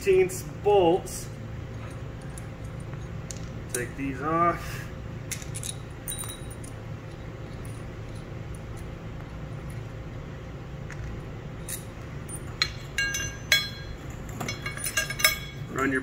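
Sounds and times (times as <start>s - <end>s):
low hum: 0.0s - 16.0s
metal bolts clinking on concrete: 5.3s - 8.9s, 11.6s - 15.9s.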